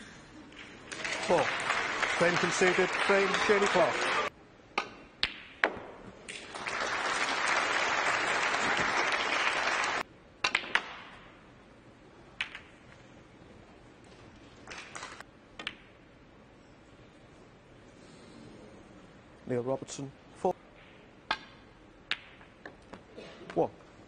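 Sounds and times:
audience applause: 0.9 - 4.3, 6.4 - 10.0
snooker balls clicking: 10.4 - 11.1, 12.4 - 12.9, 20.8 - 23.1.

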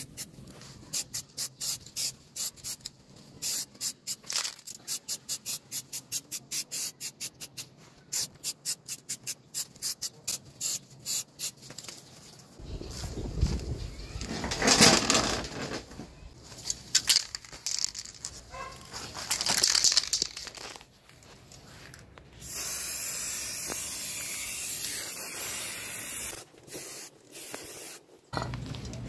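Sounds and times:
spray-paint can hissing: 0.9 - 11.6, 22.4 - 28.1.

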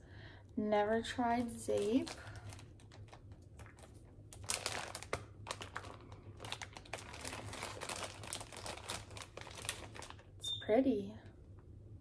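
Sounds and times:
plastic packaging crinkling: 1.2 - 10.4.

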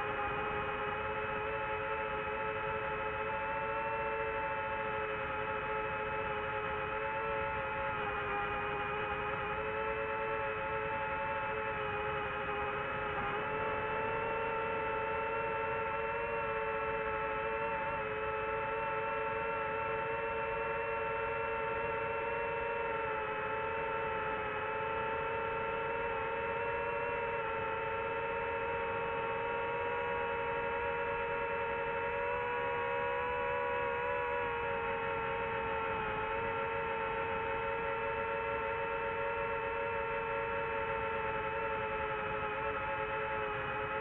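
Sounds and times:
drone motors whining: 0.0 - 44.0.

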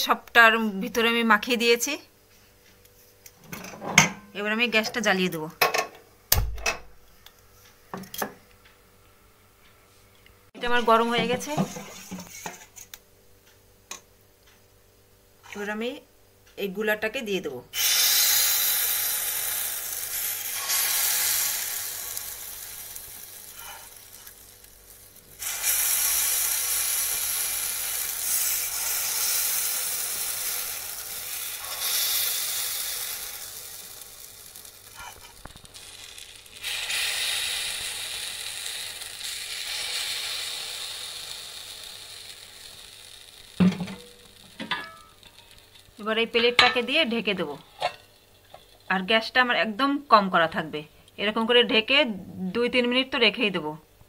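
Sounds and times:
batter sizzling in hot pan: 17.8 - 49.0.

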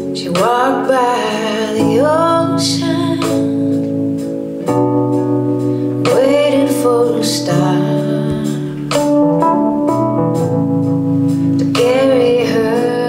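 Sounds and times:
person singing: 0.0 - 3.9, 6.0 - 9.5, 11.5 - 13.0
guitar: 0.0 - 13.0.

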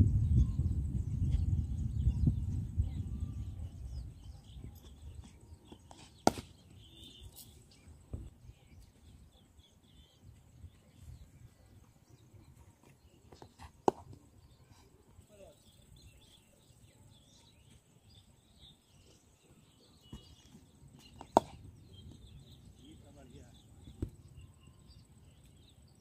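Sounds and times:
wind rumble on microphone: 0.0 - 5.7
faint bird chirps: 0.0 - 26.0
cricket bat striking ball: 5.9 - 6.6, 13.8 - 14.1, 21.2 - 21.6.

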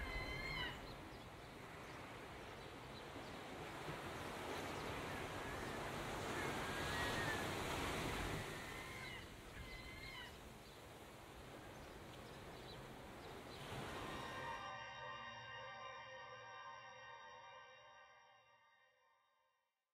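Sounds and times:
short high wavering calls: 0.0 - 0.9
rushing water: 0.0 - 14.7
wind: 0.0 - 15.6.

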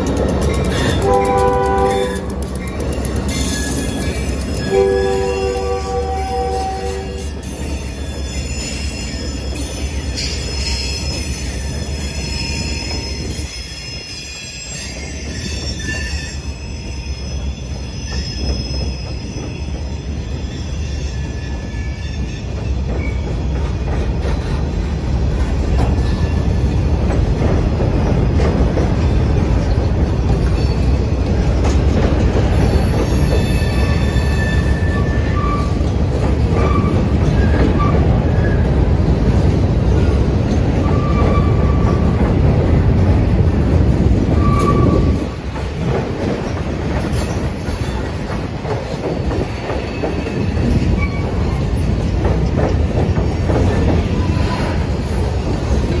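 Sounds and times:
train wheels rumbling on bridge: 0.0 - 56.0
wheel squeals: 0.4 - 24.6, 29.6 - 38.8, 44.3 - 45.4, 46.4 - 55.8.

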